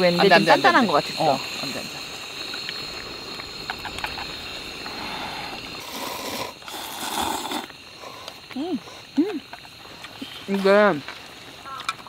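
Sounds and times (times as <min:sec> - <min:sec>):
person slurping noodles: 0:04.8 - 0:07.7.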